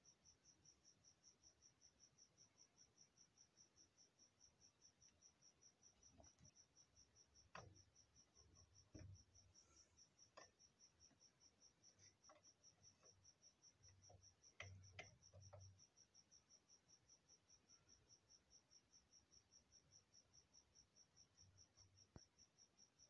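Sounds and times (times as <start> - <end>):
cricket chirping: 0.0 - 23.0
light metal clicks and taps: 14.0 - 15.7.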